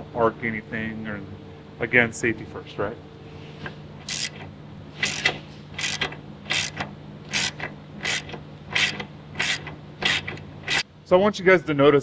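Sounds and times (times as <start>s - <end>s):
ratchet wrench clicking: 4.0s - 4.4s, 5.0s - 10.8s.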